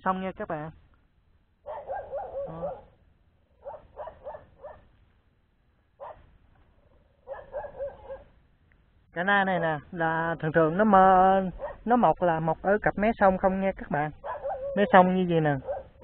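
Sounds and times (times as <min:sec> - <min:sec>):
dog yelping: 0:01.7 - 0:03.0, 0:03.6 - 0:04.9, 0:06.0 - 0:06.3, 0:07.2 - 0:08.3, 0:11.6 - 0:11.9, 0:14.2 - 0:16.0.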